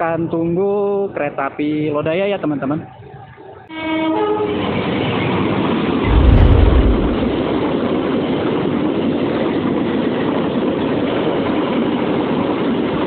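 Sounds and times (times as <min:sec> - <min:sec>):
deep low rumble: 0:06.1 - 0:07.7.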